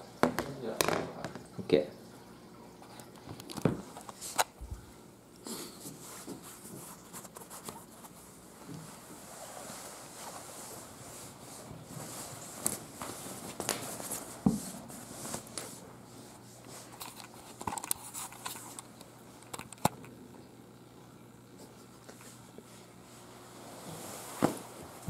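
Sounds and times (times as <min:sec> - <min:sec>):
fabric rustling: 0:23.5 - 0:25.0.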